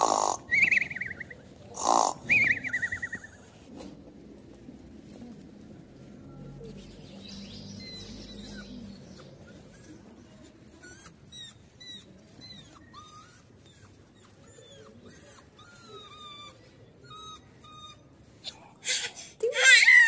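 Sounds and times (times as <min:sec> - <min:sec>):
puppy whining: 0:06.0 - 0:18.6.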